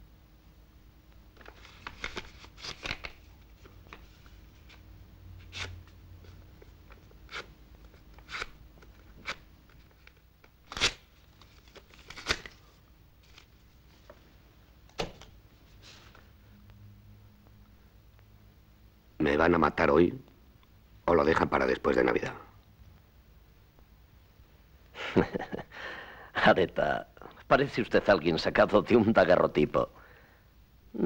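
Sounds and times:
paper tearing: 8.2s - 8.5s, 10.6s - 12.6s.

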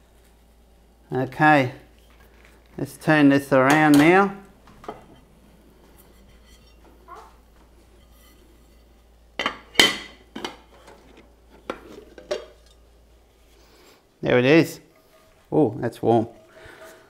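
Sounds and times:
frypan and plate clattering: 3.6s - 12.9s.

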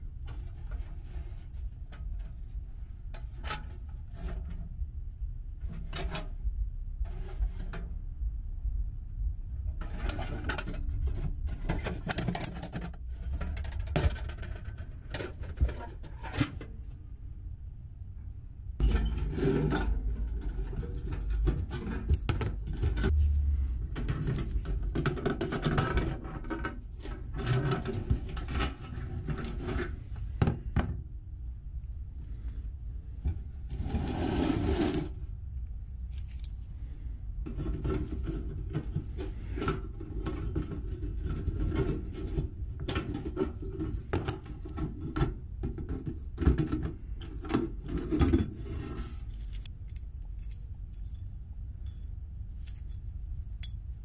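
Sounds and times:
metal taps knocks and scrapes: 9.7s - 16.7s, 18.8s - 23.2s, 24.0s - 31.0s, 37.4s - 53.8s.

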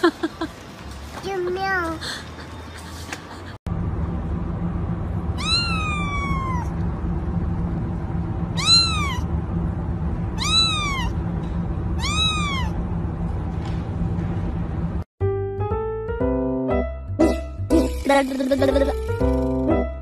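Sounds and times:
low background hum: 1.8s - 15.1s
kitten meowing: 5.4s - 6.8s, 8.6s - 9.3s, 10.4s - 11.2s, 12.0s - 12.8s.

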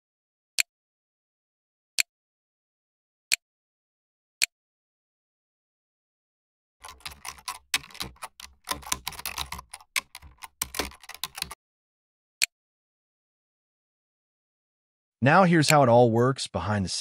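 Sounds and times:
computer keyboard typing: 6.8s - 11.6s.

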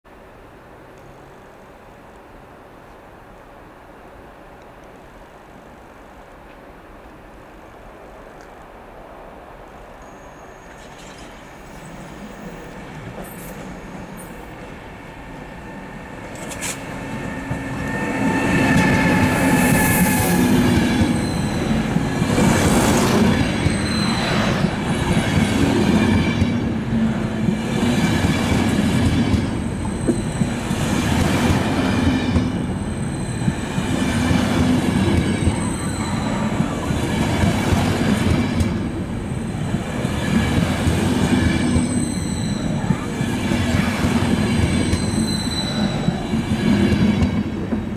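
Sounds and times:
high wheel squeal: 10.0s - 25.1s, 29.5s - 31.0s, 32.2s - 34.3s, 35.2s - 37.1s, 41.5s - 47.3s.

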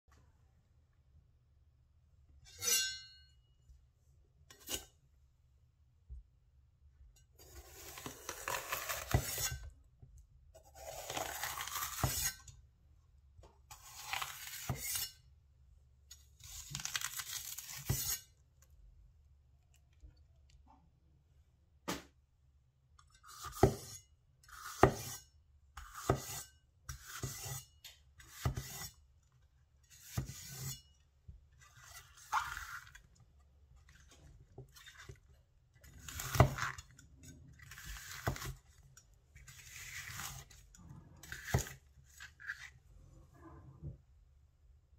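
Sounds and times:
knife chopping pepper on a board: 24.6s - 25.2s, 25.8s - 27.6s.

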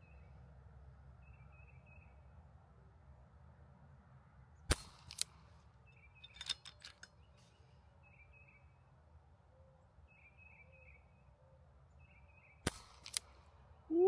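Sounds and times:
air rifle shot crack: 4.7s - 5.4s, 12.6s - 13.4s
rifle mechanism clicks: 12.8s - 13.4s.

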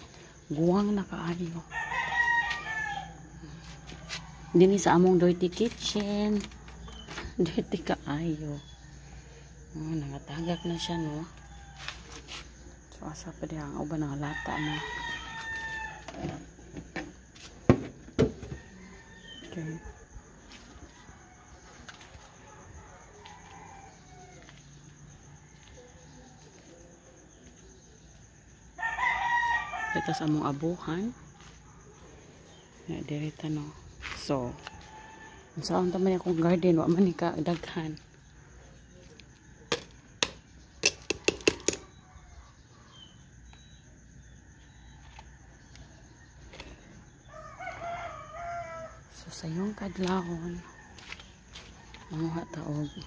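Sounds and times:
roosters crowing: 1.5s - 5.4s, 10.4s - 12.4s, 14.2s - 16.6s, 18.2s - 25.8s, 28.7s - 30.6s, 34.0s - 35.9s, 44.5s - 53.0s.

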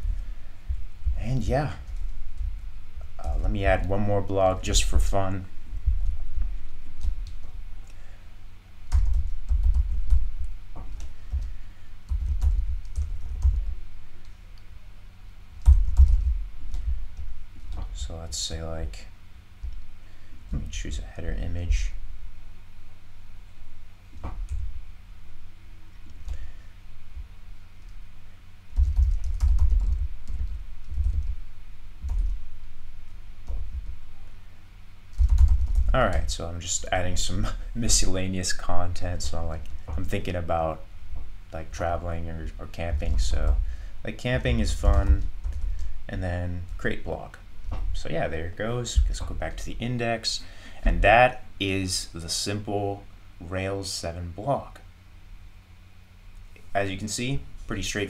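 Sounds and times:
faint steady hum: 0.0s - 58.0s
typing on computer keyboard: 12.1s - 13.7s, 15.6s - 16.9s, 28.8s - 31.4s, 35.1s - 35.9s.

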